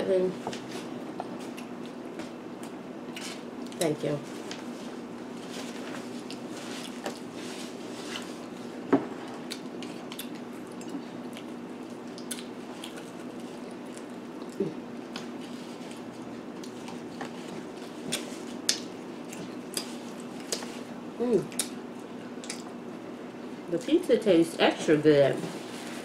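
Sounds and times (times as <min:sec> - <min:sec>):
people chewing: 0:05.4 - 0:22.8.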